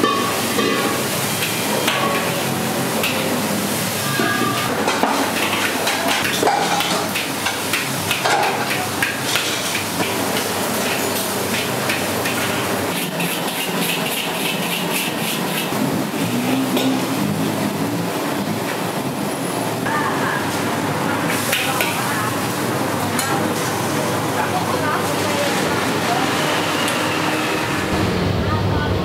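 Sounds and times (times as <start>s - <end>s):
metal spatula scraping a wok: 0.0s - 17.4s
steady background roar: 25.6s - 29.0s.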